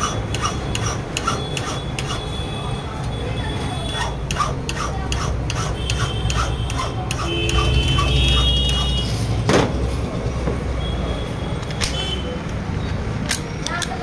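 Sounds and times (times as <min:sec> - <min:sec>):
hand file rasping on metal: 0:00.0 - 0:02.3, 0:03.9 - 0:09.0.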